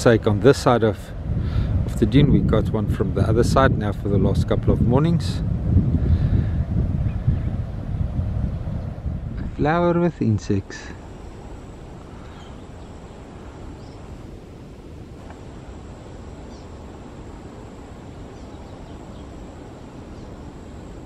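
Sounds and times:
outdoor background hiss: 0:00.0 - 0:21.0
faint bird chirps: 0:11.8 - 0:14.2, 0:15.5 - 0:17.6, 0:18.2 - 0:20.8.

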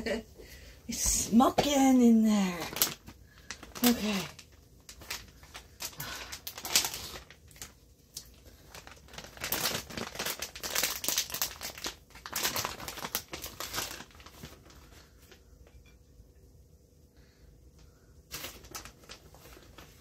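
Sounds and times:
plastic bag crinkling: 0:00.9 - 0:16.0, 0:18.2 - 0:20.0.

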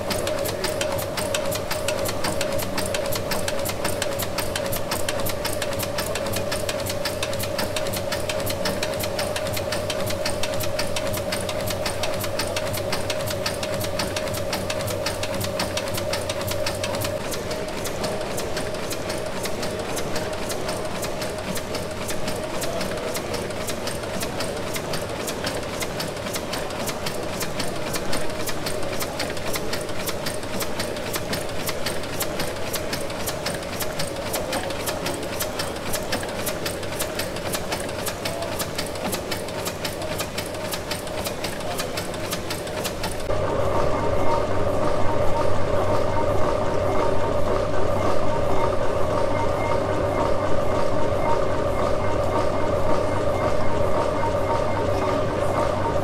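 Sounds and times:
steam engine running: 0:00.0 - 0:44.0.

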